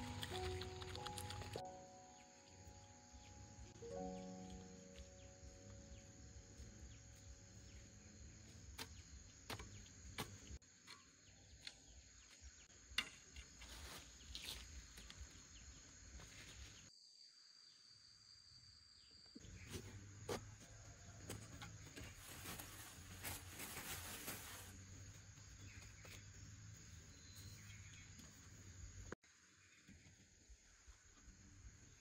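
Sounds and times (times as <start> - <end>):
high insect call: 0.0 - 21.6.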